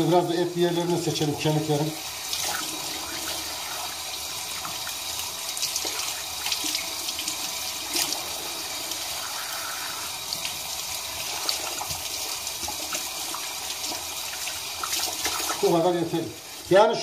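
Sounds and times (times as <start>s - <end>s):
small water splashes: 4.5s - 8.3s, 11.2s - 15.7s.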